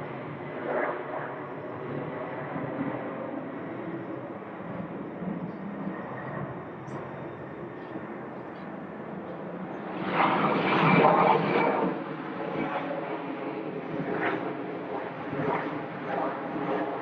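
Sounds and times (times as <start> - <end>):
jet engine rumble: 0.0 - 17.0.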